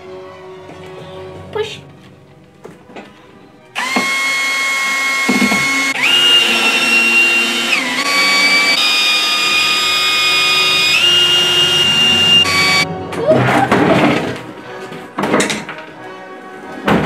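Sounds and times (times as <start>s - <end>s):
cordless drill whining: 3.8s - 12.9s.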